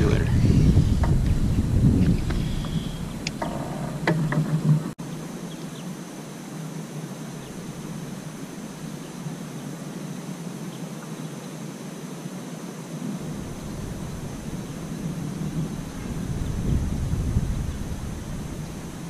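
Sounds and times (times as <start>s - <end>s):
wind on microphone: 0.0s - 5.0s, 13.0s - 19.0s
open water background: 0.0s - 19.0s
knocks and rustle: 2.0s - 5.0s
faint high whine: 5.0s - 19.0s.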